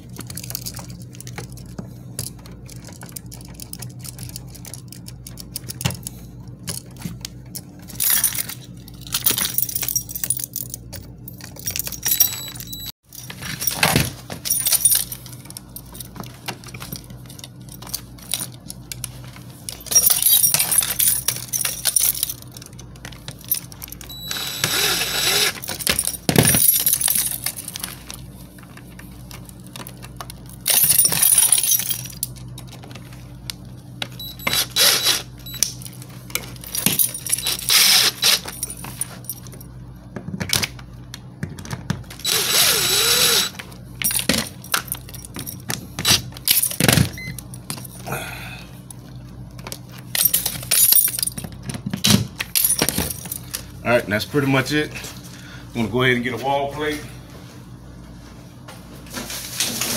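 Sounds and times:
metallic clinking and scraping: 0.0 - 33.1, 34.0 - 39.5, 42.2 - 48.0
steady low hum: 0.0 - 59.9
cordless drill running: 24.1 - 25.8, 34.2 - 35.3, 37.4 - 38.5, 42.2 - 43.6.

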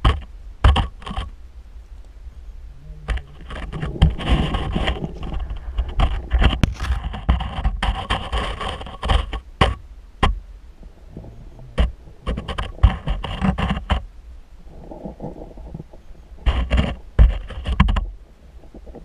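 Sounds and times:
underwater knocks and scraping: 0.0 - 1.4, 3.0 - 14.1, 14.7 - 19.0
low underwater rumble: 1.4 - 7.4, 9.5 - 17.2.

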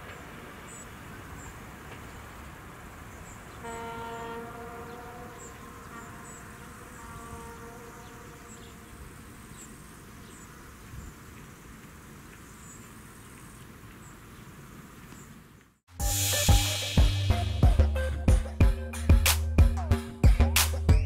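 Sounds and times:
insects chirping: 0.0 - 15.6
faint train horn: 3.6 - 9.0.

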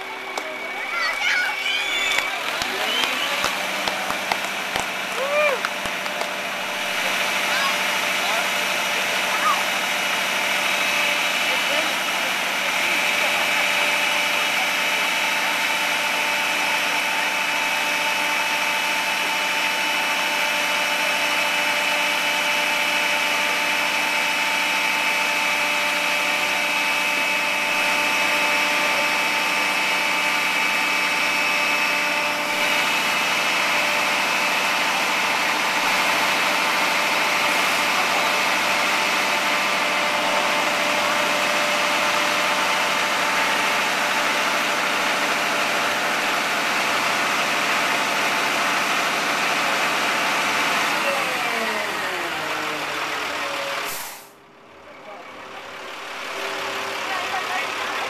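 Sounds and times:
constant whine: 0.0 - 58.0
truck engine running: 0.0 - 58.0.

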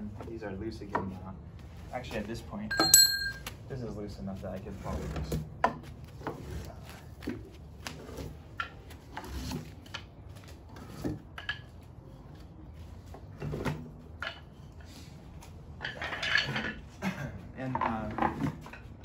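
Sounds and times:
wooden sticks knocking and clattering: 2.7 - 3.6.

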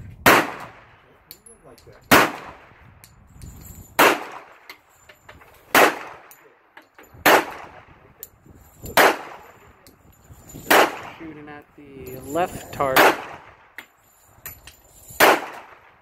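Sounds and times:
pistol shots with echo: 0.2 - 1.0, 2.1 - 2.7, 4.0 - 4.6, 5.7 - 6.4, 7.2 - 7.9, 9.0 - 9.6, 10.7 - 11.2, 12.9 - 13.8, 15.2 - 16.0.

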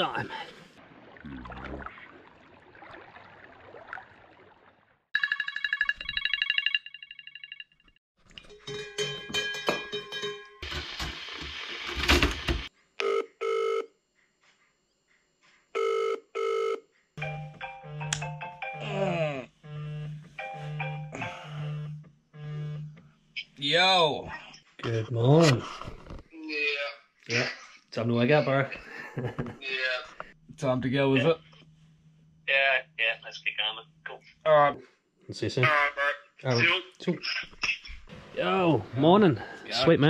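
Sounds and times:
pulsing electronic ringing tone: 5.2 - 7.9.

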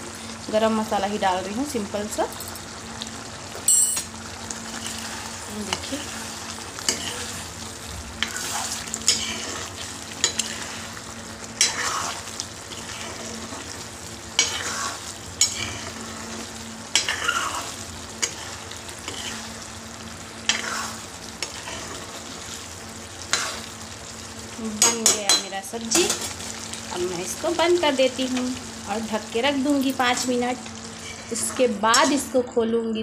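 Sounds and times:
curry bubbling and sizzling: 0.0 - 32.5.

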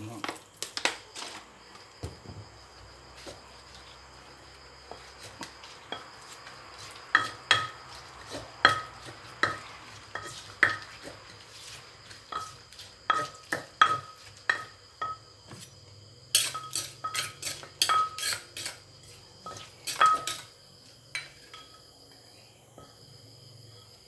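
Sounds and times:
pestle knocking in clay mortar: 4.9 - 11.4, 12.1 - 15.6, 19.4 - 20.5.

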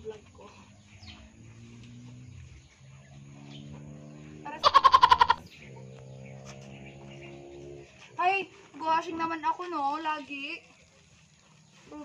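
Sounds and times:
quavering bleat-like call: 4.5 - 5.5.

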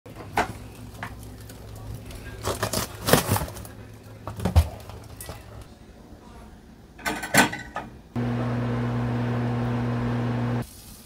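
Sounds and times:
refrigerator hum: 8.2 - 10.6.

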